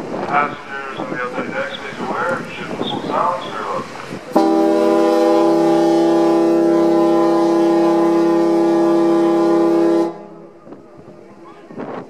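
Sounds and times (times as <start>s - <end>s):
ferry horn blast: 4.3s - 10.6s.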